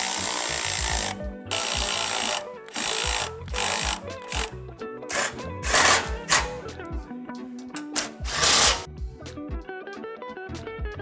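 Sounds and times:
ratchet clicking: 0.0 - 4.5, 5.1 - 6.6, 7.6 - 8.9
background music with beat: 0.0 - 11.0.

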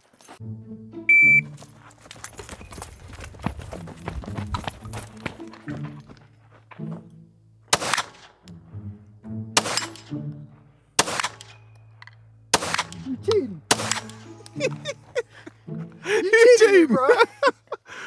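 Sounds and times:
background music: 0.2 - 18.0
pistol shots: 7.7 - 8.4, 9.6 - 10.2, 11.0 - 11.6, 12.5 - 13.1, 13.7 - 14.4.

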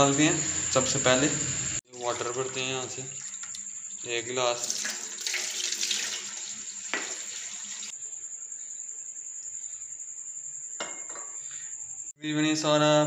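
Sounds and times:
water splashing: 1.9 - 7.9
tap water running into a glass: 2.0 - 7.9.

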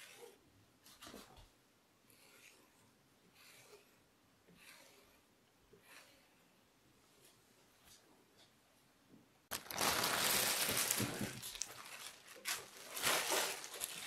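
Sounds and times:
plastic sheet crinkling: 9.5 - 14.0.

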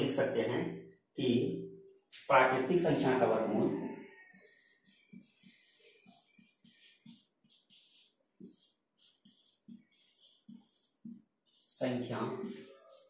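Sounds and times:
marker scratching on whiteboard: 4.2 - 13.0.

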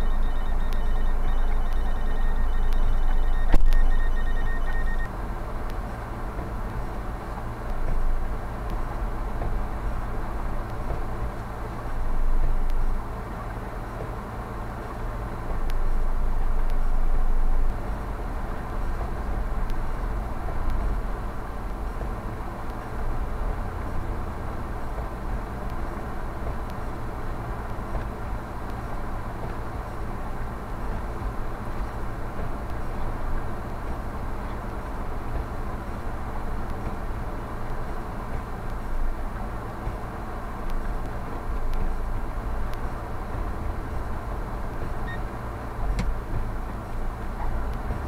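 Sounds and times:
car driving rumble inside cabin: 0.0 - 48.0
road noise: 0.0 - 48.0
faint ticks: 0.3 - 5.8, 16.6 - 16.9, 39.8 - 42.0.

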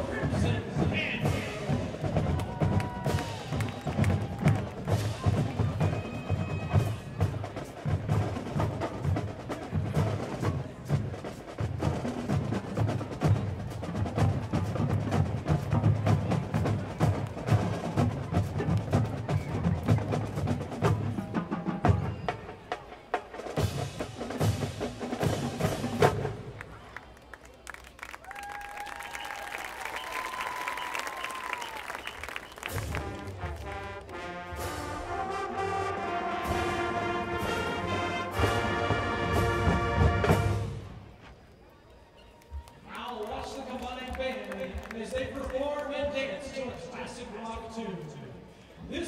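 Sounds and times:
marching band playing: 0.0 - 26.9, 29.4 - 41.2
brass section playing chords: 32.7 - 41.0.

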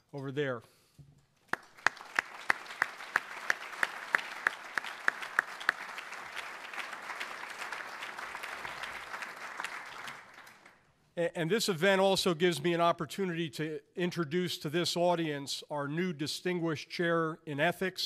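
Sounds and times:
loud close clapping: 1.4 - 10.8
audience applauding: 1.5 - 10.8.

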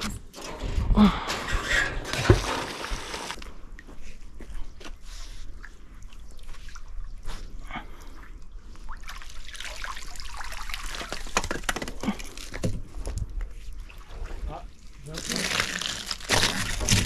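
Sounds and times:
water dripping and trickling: 5.5 - 16.8.

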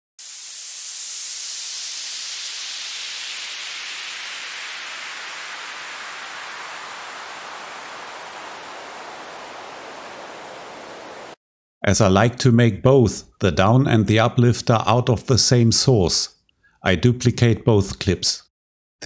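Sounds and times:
synth noise sweeping down: 0.2 - 11.4.

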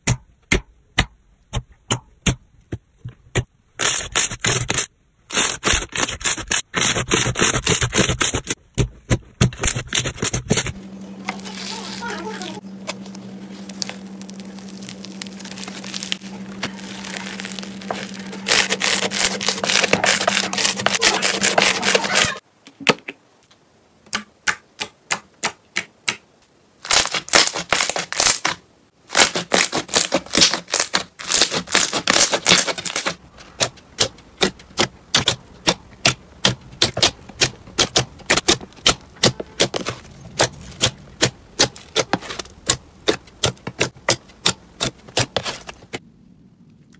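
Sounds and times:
steady low hum: 9.7 - 22.4
foam-bead slime crackling: 11.2 - 22.4, 26.8 - 33.1
sticky slime popping: 12.8 - 22.2.

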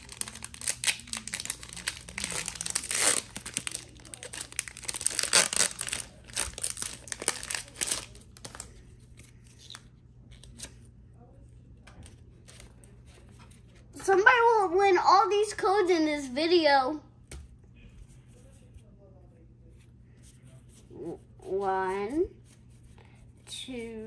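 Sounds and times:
foil wrapper crinkling and tearing: 0.0 - 8.7.

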